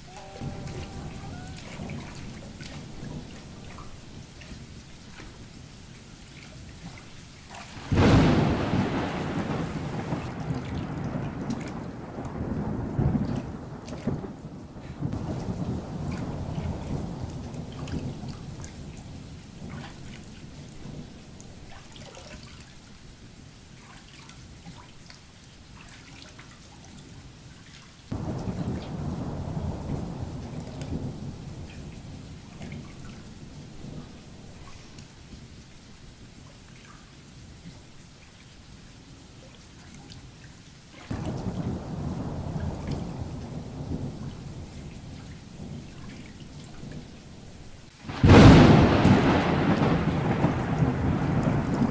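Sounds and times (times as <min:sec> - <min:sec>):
thunder: 0:00.0 - 0:05.5, 0:07.6 - 0:22.4, 0:28.1 - 0:35.0, 0:41.0 - 0:47.3, 0:48.1 - 0:51.9
heavy rain: 0:00.0 - 0:23.8, 0:28.0 - 0:51.9
rain with drips: 0:00.0 - 0:51.9.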